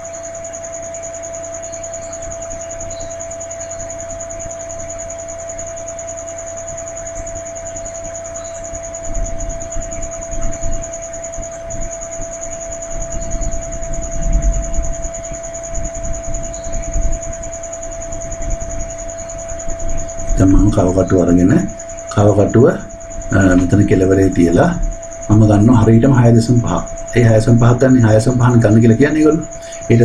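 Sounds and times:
high-pitched electrical whine: 0.0s - 30.0s
low hum: 0.0s - 30.0s
background hiss: 7.2s - 30.0s.

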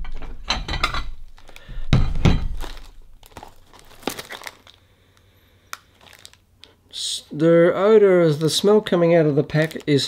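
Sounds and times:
packaging crinkling: 1.2s - 6.8s, 8.3s - 10.0s.

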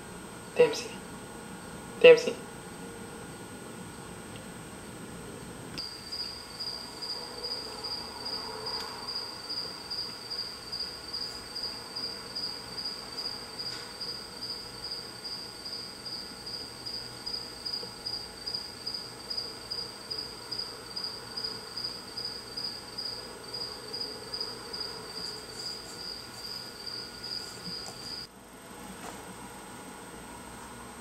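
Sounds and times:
cricket chirping: 5.8s - 28.3s.

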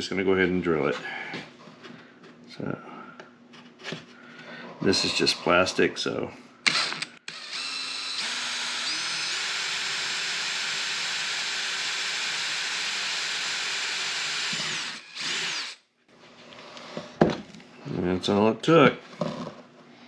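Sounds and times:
cordless drill whining: 6.7s - 15.8s.

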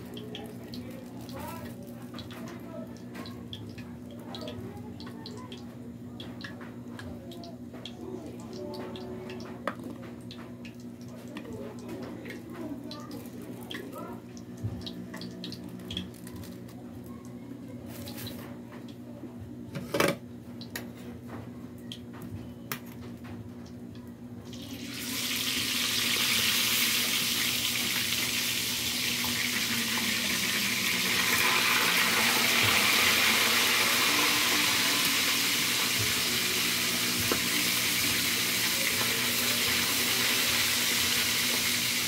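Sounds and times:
fish sizzling in hot oil: 24.6s - 42.0s.

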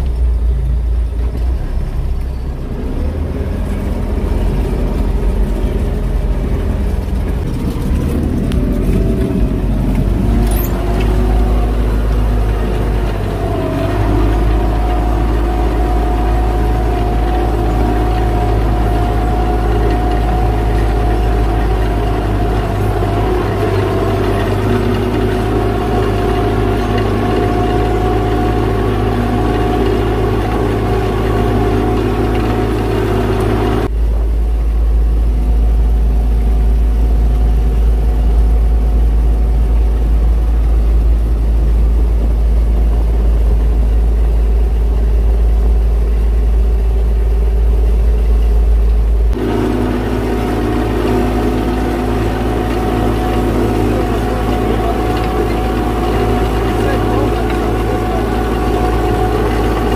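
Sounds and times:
deep dull engine drone: 0.0s - 59.9s
tractor diesel engine running: 0.0s - 59.9s.

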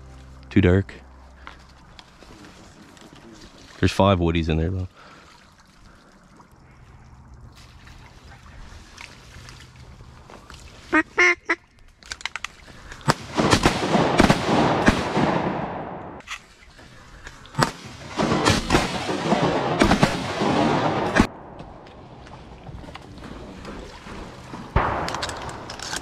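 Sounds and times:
shotgun shots: 13.1s - 16.2s, 17.6s - 21.6s, 24.7s - 26.0s.

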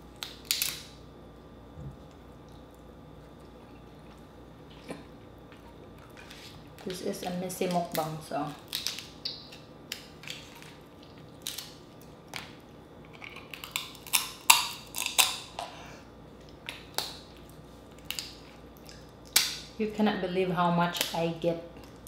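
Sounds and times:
crab shell cracking: 0.2s - 1.0s, 7.6s - 15.6s, 17.9s - 19.7s.

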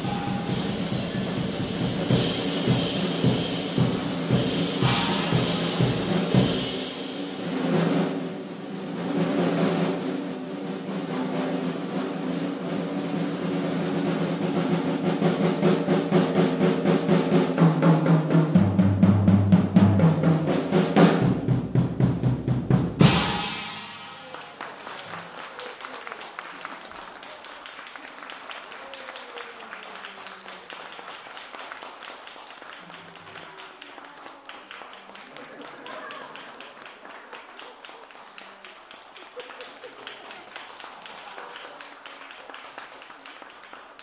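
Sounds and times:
drum roll with cymbals: 0.0s - 24.6s.

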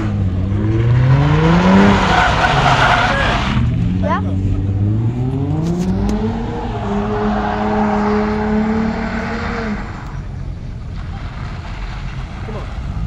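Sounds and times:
car engine revving high: 0.0s - 10.4s.

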